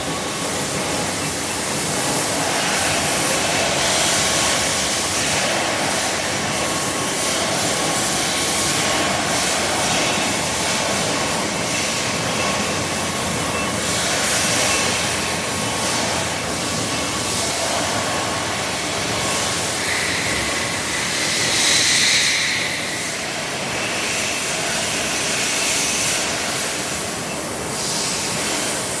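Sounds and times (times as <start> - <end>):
faint machine whine: 0.0 - 29.0
workshop machinery hissing: 0.0 - 29.0.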